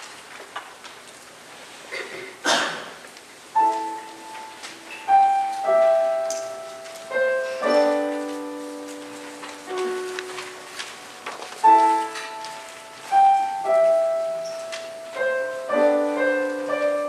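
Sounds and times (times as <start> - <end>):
slow piano notes and chords: 3.5 - 17.0.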